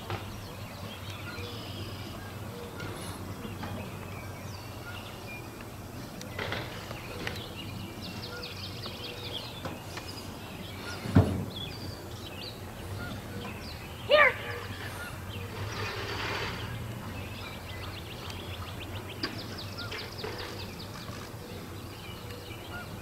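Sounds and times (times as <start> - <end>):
birds chirping: 0.0 - 23.0.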